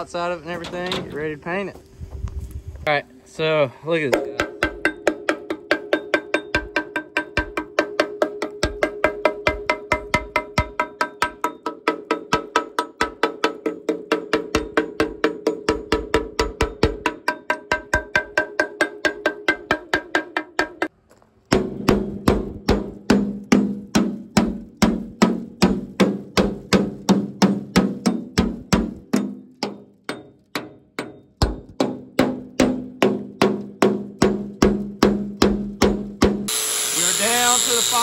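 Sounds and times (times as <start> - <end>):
music with wood-block clicks: 4.2 - 20.9.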